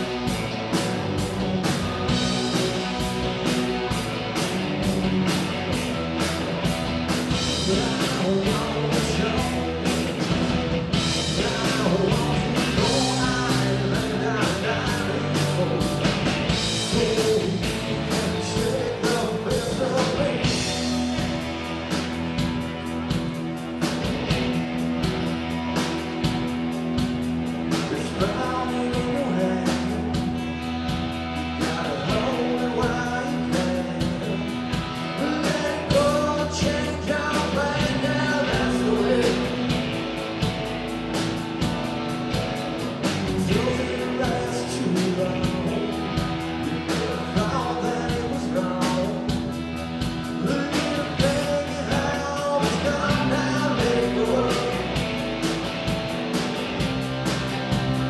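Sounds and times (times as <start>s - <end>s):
drum kit beat: 0.0s - 58.0s
electric guitars: 0.0s - 58.0s
person singing: 7.5s - 10.0s, 11.1s - 21.0s, 27.8s - 30.3s, 31.6s - 34.5s, 35.1s - 39.7s, 43.2s - 46.1s, 50.4s - 55.0s.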